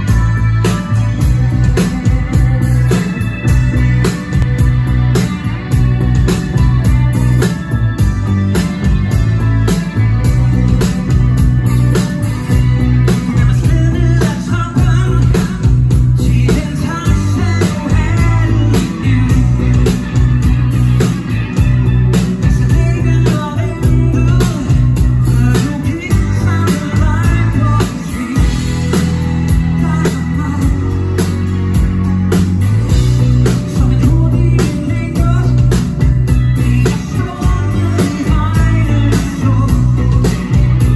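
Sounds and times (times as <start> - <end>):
live pop-rock band playing: 0.0 - 40.9
male lead vocal: 12.9 - 20.1, 22.4 - 31.4, 33.4 - 40.9.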